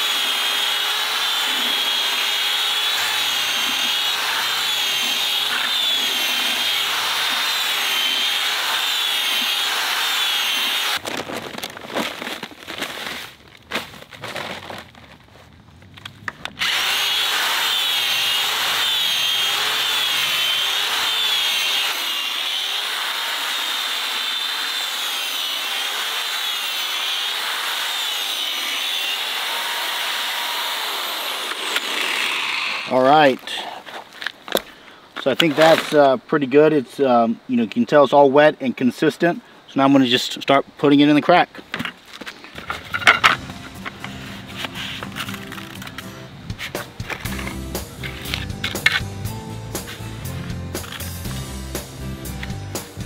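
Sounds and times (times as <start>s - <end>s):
power drill mixing epoxy and sand: 0.0s - 11.0s, 16.6s - 33.1s.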